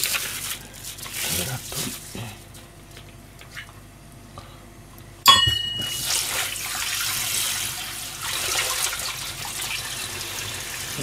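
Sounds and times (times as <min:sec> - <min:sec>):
metal bowl clanking in sink: 0:05.3 - 0:06.6.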